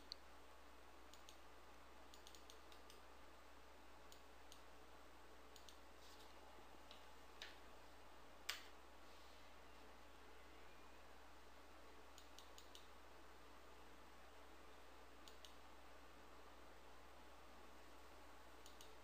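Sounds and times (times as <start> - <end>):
computer mouse clicks: 1.1 - 1.4, 2.1 - 3.0, 4.1 - 4.7, 5.5 - 5.9, 12.1 - 12.9, 15.2 - 15.6, 18.6 - 19.0
keyboard clicks: 1.1 - 1.4, 2.1 - 3.0, 5.5 - 5.8, 12.1 - 12.9, 15.2 - 15.6, 18.6 - 19.0.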